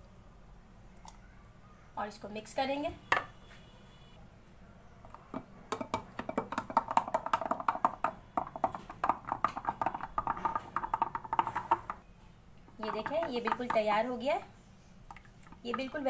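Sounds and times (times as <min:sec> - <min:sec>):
stirrer clinking against jug: 0:12.8 - 0:13.9.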